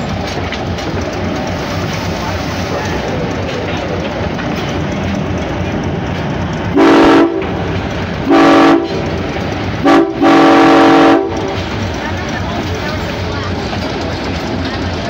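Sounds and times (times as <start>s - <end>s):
locomotive rumbling: 0.0s - 15.0s
locomotive air horn blasts: 6.7s - 7.6s, 8.3s - 9.0s, 9.8s - 11.6s.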